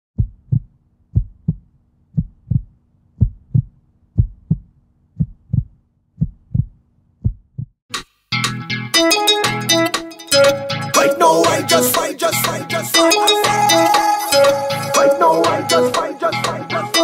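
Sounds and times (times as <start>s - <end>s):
heartbeat double thumps: 0.2s - 7.8s.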